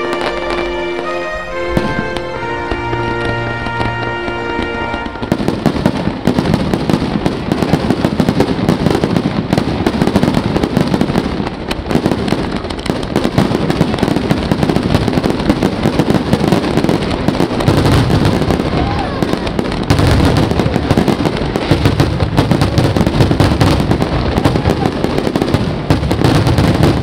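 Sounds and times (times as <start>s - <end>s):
music with held notes: 0.0s - 5.4s
fireworks bursting and crackling: 0.0s - 27.0s.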